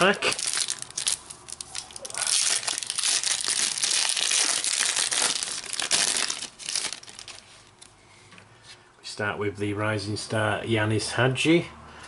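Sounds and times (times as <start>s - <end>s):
wrapper crinkling and tearing: 0.0s - 7.9s.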